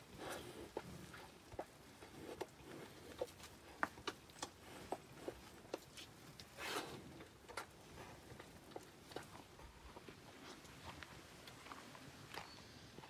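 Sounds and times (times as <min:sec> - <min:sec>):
calf suckling wet smacking: 0:00.2 - 0:06.6.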